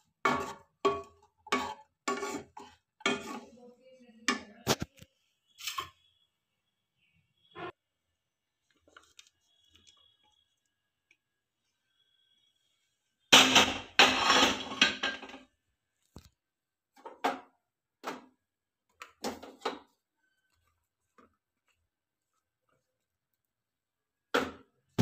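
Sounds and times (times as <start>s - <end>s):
wooden spatula scraping pan: 0.1s - 3.6s.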